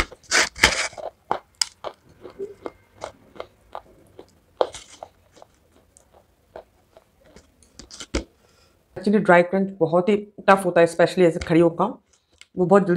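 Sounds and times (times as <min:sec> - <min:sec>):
chewing chalky clay crunches: 0:00.0 - 0:08.1.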